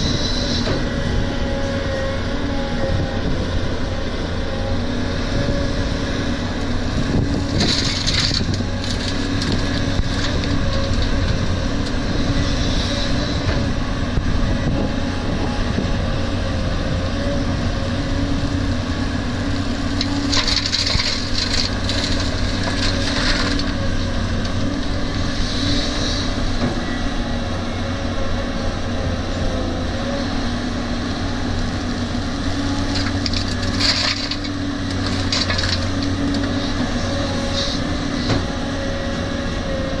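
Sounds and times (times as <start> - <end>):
excavator diesel engine running: 0.0 - 40.0
gravel pouring into steel truck bed: 33.0 - 34.4.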